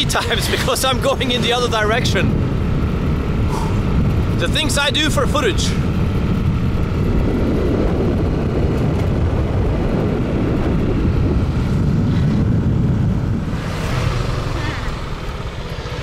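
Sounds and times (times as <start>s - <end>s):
motorbike running: 0.0s - 16.0s
wind buffeting microphone: 0.0s - 16.0s.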